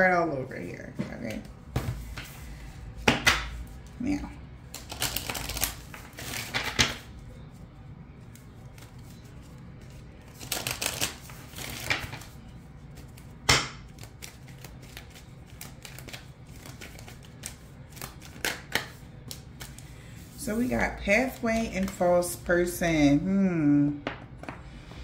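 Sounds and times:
cards shuffling and snapping: 4.7s - 7.1s, 8.3s - 12.4s, 13.0s - 19.8s.

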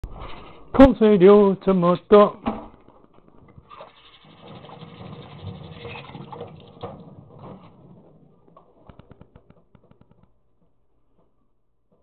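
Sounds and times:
tap water running into metal sink: 3.8s - 7.2s.

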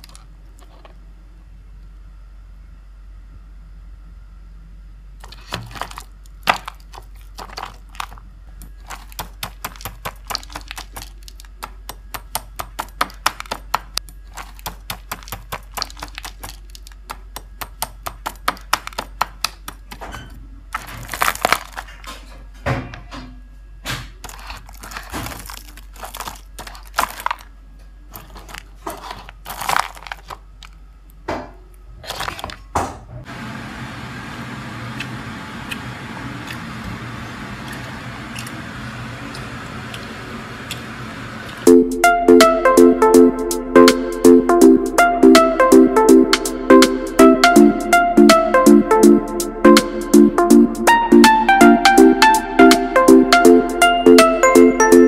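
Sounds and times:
crunching fried food: 5.2s - 20.0s, 20.7s - 22.3s, 24.1s - 30.8s.

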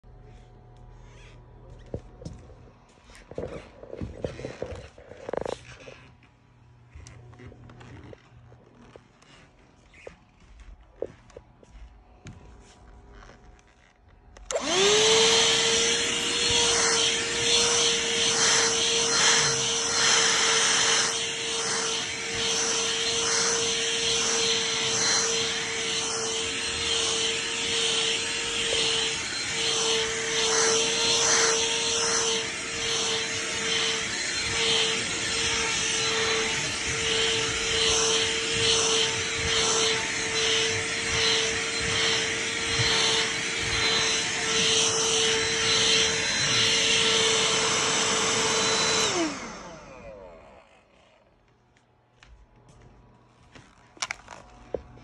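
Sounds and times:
handheld vacuum whining: 0.0s - 52.0s, 53.5s - 55.0s
vacuum motor winding down: 13.2s - 51.6s.

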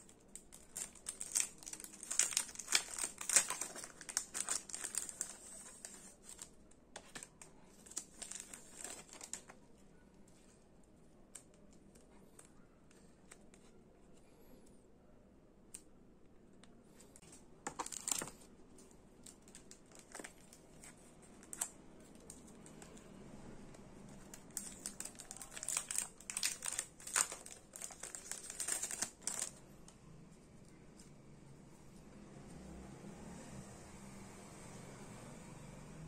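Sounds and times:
packaging crinkling: 0.3s - 9.6s, 17.2s - 18.5s, 19.2s - 23.0s, 24.2s - 29.6s.

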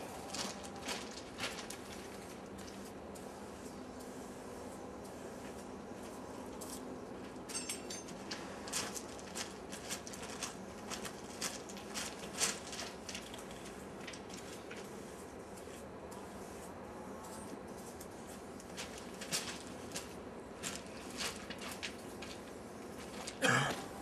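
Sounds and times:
footsteps crunching on gravel: 0.2s - 2.2s.

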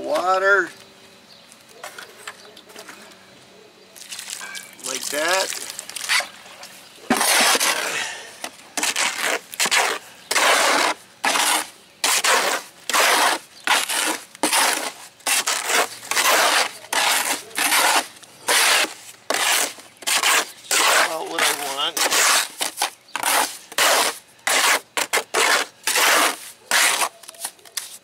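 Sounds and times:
trowel scraping mortar in tub: 7.1s - 28.0s.

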